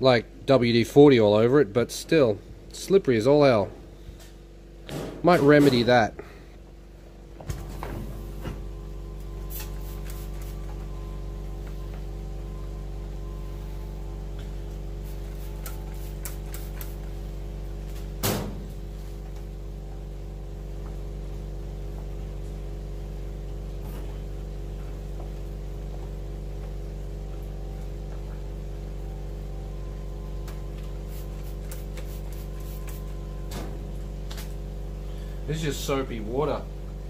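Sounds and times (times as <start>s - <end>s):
steady machine hum: 0.0s - 37.0s
towel rubbing rubber gloves: 31.0s - 33.2s.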